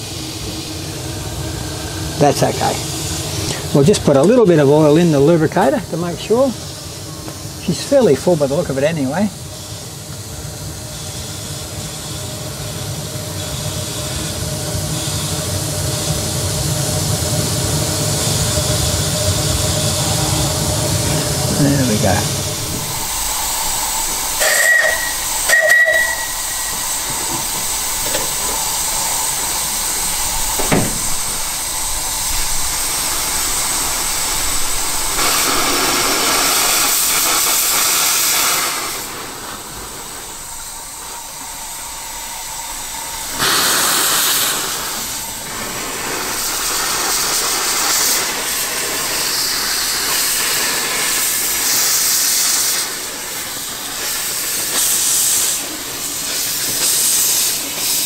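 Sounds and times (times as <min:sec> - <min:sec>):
steam locomotive hissing: 0:00.0 - 0:58.0
single knock: 0:30.6 - 0:31.4.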